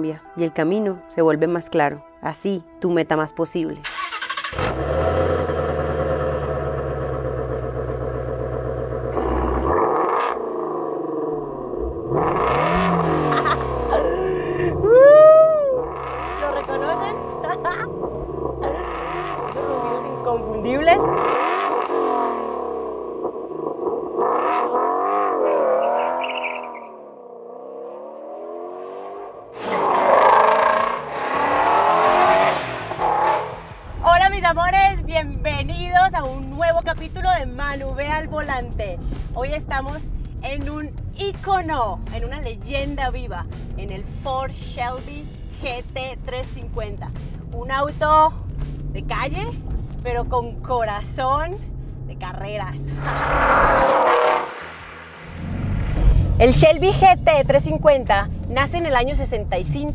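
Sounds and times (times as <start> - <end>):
engine revving: 3.9 - 15.0, 15.6 - 35.5, 47.4 - 59.9
car engine idling: 4.2 - 14.9
car accelerating past: 4.5 - 14.0, 15.7 - 34.0, 52.8 - 56.9.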